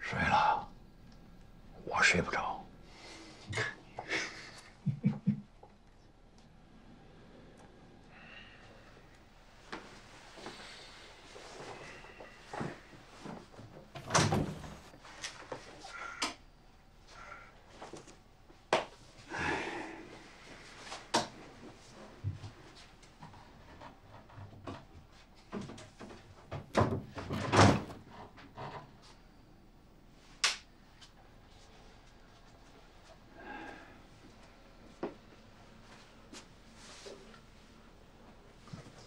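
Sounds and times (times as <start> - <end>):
wooden wardrobe doors knocking: 26.5 - 28.0
sharp click: 30.4 - 30.7.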